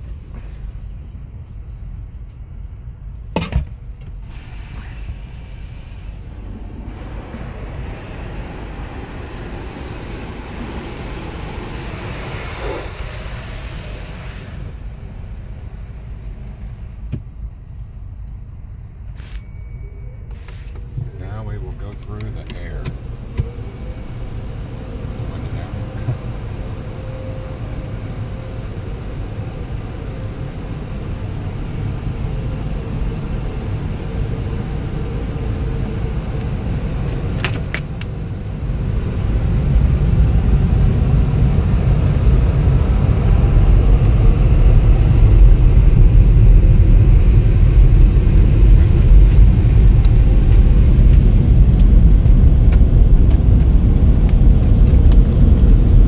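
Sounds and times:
car wash machinery rumbling: 0.0 - 19.3, 20.2 - 56.0
air dryer blowers: 4.3 - 15.0.

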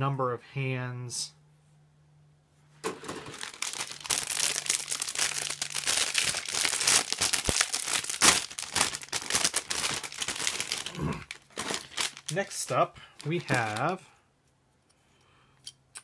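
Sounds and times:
plastic bags crinkling: 2.8 - 14.0.

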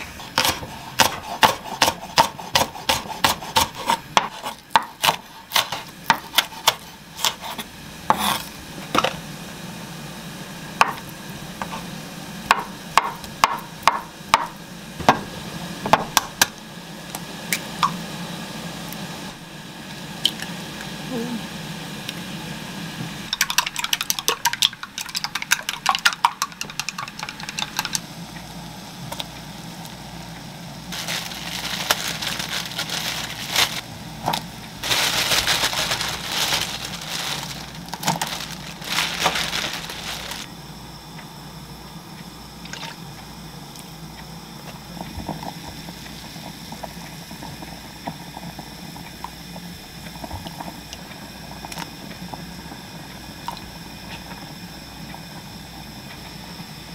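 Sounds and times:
boiling hiss: 0.0 - 56.9
chopsticks clicking beating eggs: 23.3 - 28.0.

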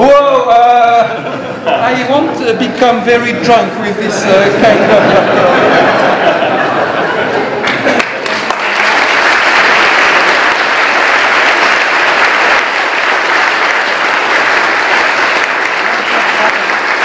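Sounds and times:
audience applauding: 7.2 - 17.0.

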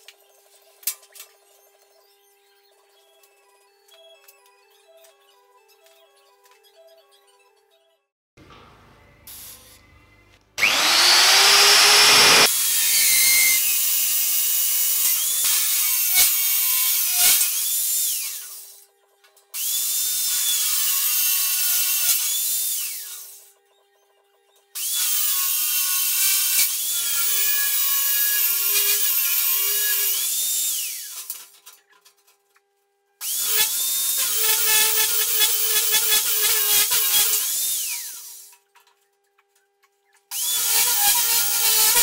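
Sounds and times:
magnetic drill cutting whine: 10.6 - 13.7.

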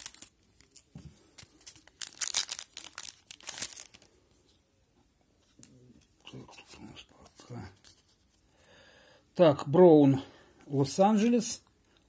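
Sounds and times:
card pack wrapper tearing: 0.0 - 4.1.

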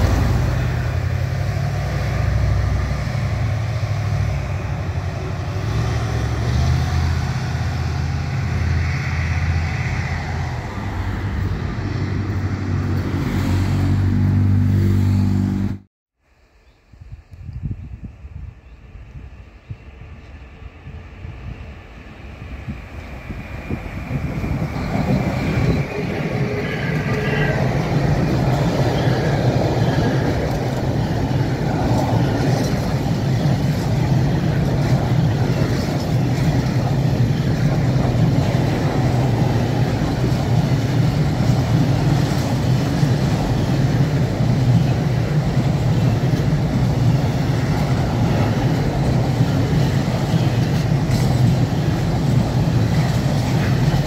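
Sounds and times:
train wheels rumbling on rails: 0.0 - 15.0, 17.5 - 54.0
train clank: 24.2 - 54.0.

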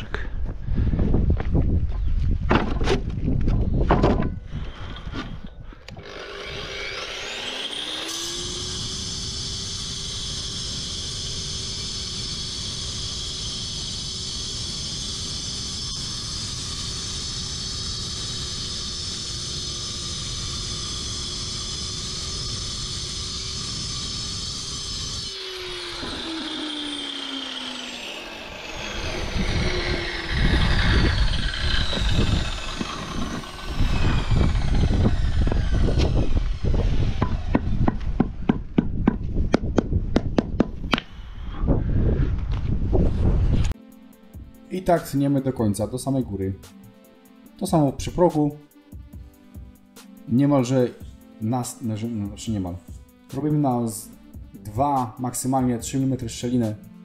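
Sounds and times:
cut-off saw cutting concrete: 4.8 - 38.8, 50.0 - 57.0.

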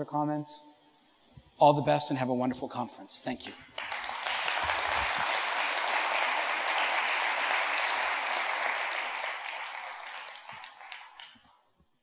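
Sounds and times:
audience applauding: 3.7 - 11.6.

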